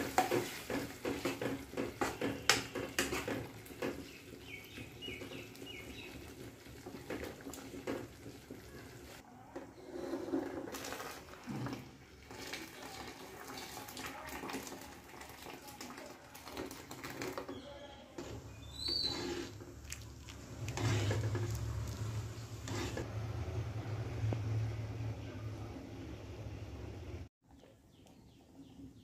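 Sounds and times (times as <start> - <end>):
ladle stirring liquid: 0.0 - 23.1
liquid poured into pot: 10.3 - 17.6.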